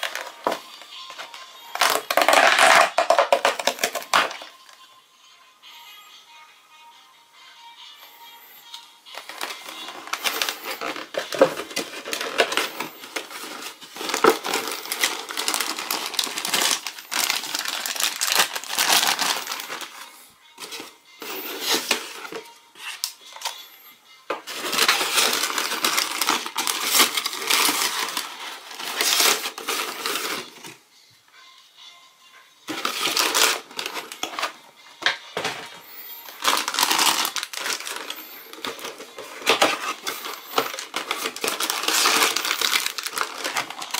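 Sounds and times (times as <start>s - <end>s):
plastic wrappers crinkling: 0.0s - 4.8s, 8.8s - 30.8s, 32.7s - 43.9s
cardboard boxes being opened: 9.2s - 20.0s, 24.5s - 30.6s, 36.4s - 43.9s.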